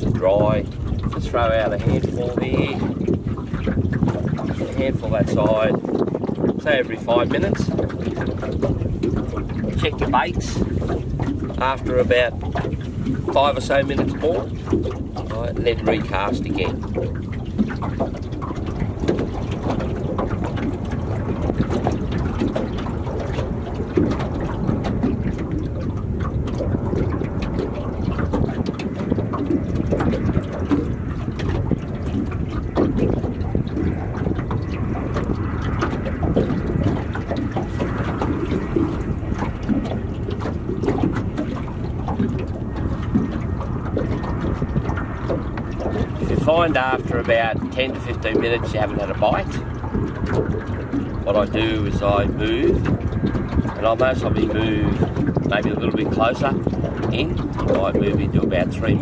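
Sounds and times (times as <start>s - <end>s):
waves slapping against boat hull: 0.0s - 59.0s
wind buffeting microphone: 0.0s - 59.0s.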